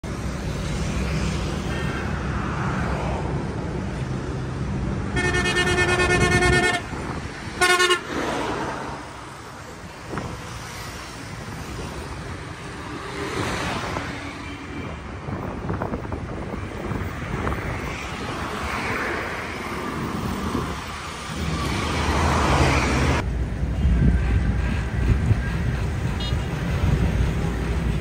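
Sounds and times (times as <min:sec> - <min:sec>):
road traffic passing: 0:00.0 - 0:28.0
vehicle horn blowing: 0:05.1 - 0:06.9, 0:07.6 - 0:08.1.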